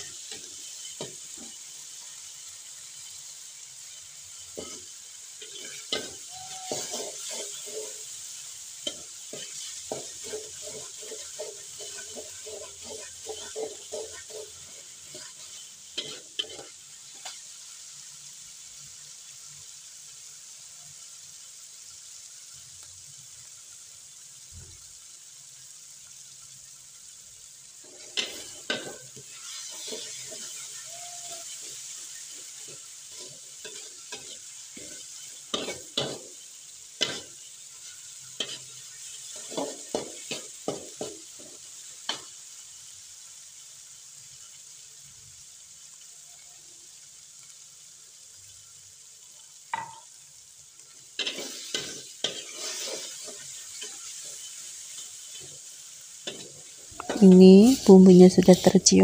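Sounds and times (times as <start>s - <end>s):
paste sizzling in hot oil: 0.0s - 59.0s
metal spoon scraping a wok: 4.3s - 17.5s, 27.8s - 42.3s, 51.2s - 57.9s.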